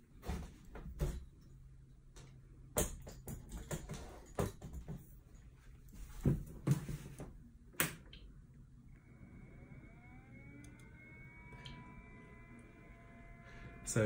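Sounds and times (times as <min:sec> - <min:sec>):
fans whining: 0:07.8 - 0:14.0.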